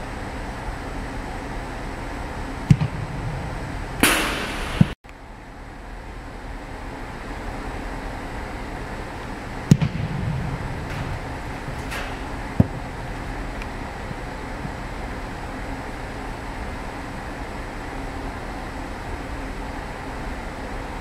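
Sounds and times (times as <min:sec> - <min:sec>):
steady building hum: 0:00.0 - 0:21.0
football kick thud echoing: 0:02.7 - 0:05.0, 0:09.7 - 0:13.2
short rushing noise ending in knock: 0:02.7 - 0:05.0.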